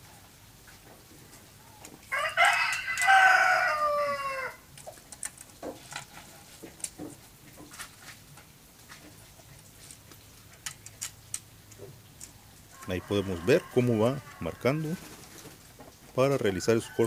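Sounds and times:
rooster crowing: 2.1s - 4.7s, 12.7s - 15.0s, 16.4s - 17.0s.

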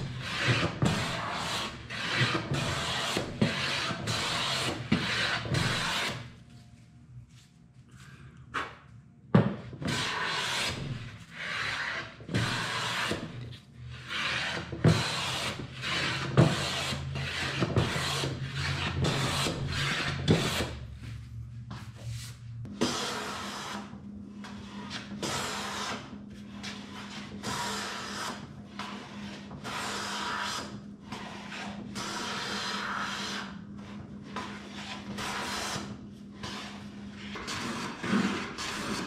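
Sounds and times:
hand plane shaving wood: 0.1s - 6.2s, 9.9s - 13.4s, 14.0s - 20.8s, 26.7s - 33.5s.

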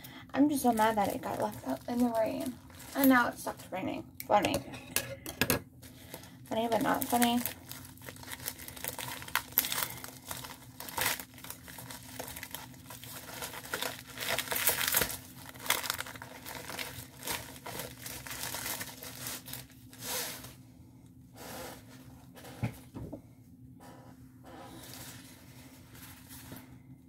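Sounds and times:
plastic packaging crinkling: 0.5s - 3.4s, 6.0s - 20.6s.

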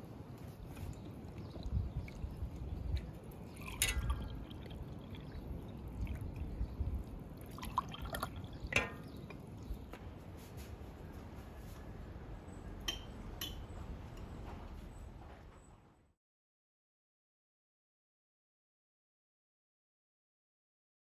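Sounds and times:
drink pouring into glasses: 1.6s - 6.5s, 7.4s - 8.9s.

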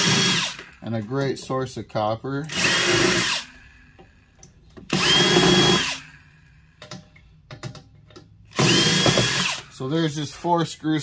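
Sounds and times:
power drill motor whining: 0.0s - 0.8s, 2.5s - 4.3s, 4.9s - 6.5s, 8.5s - 10.4s.

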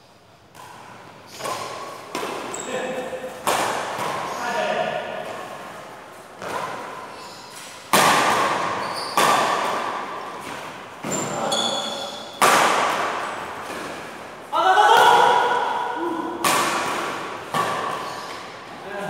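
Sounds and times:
rackets smacking shuttlecock: 0.5s - 14.2s, 14.9s - 18.6s
player shouting: 14.5s - 16.4s.

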